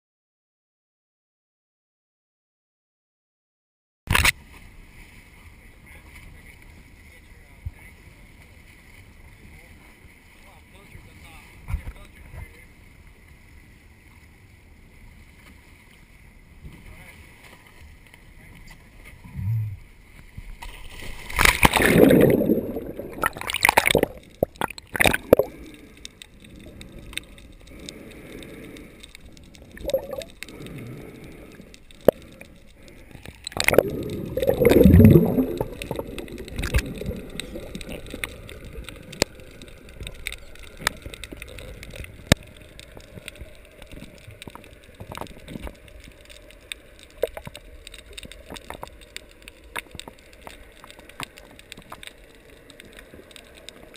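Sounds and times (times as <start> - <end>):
underwater low hiss: 4.4 - 53.9
water splashes and bubbling: 15.2 - 53.9
sharp underwater clicks: 19.4 - 53.9.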